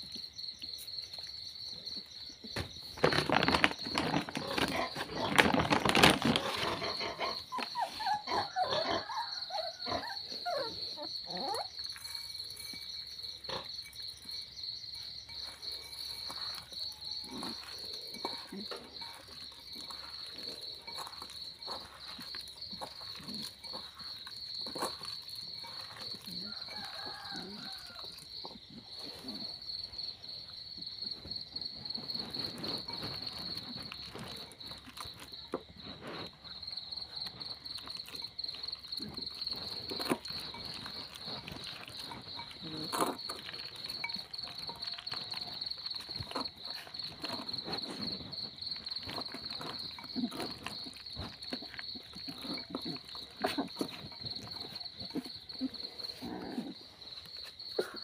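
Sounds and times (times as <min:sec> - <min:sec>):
crickets chirping: 0:00.0 - 0:58.0
hand mixing food in a bowl: 0:11.0 - 0:30.0, 0:31.8 - 0:56.2.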